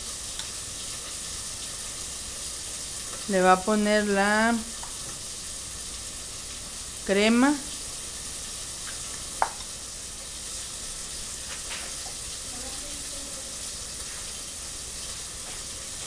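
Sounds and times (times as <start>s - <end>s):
chicken frying in oil: 0.0s - 16.0s.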